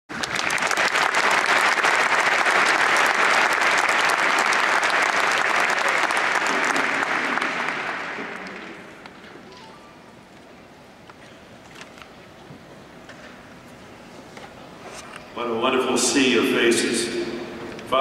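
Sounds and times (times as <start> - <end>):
audience applauding: 0.1 - 9.7.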